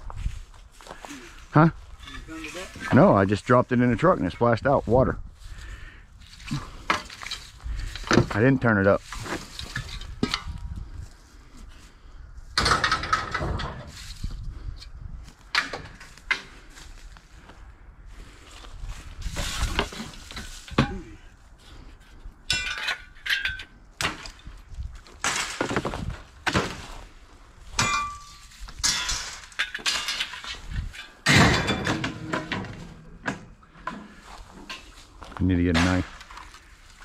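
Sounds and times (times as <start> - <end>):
scrap metal clanking: 27.8 - 35.1.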